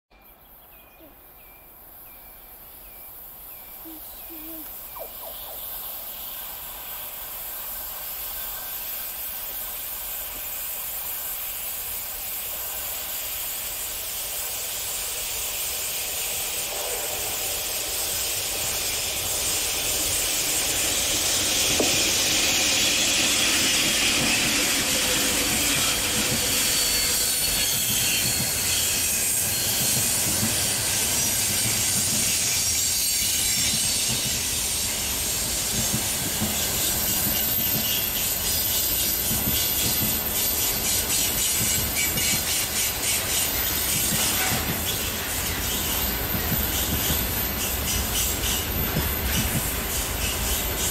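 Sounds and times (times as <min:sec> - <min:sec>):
freight train passing: 0:00.2 - 0:50.9
high hiss: 0:01.7 - 0:50.9
wheel squeal: 0:20.9 - 0:35.4, 0:36.5 - 0:50.9.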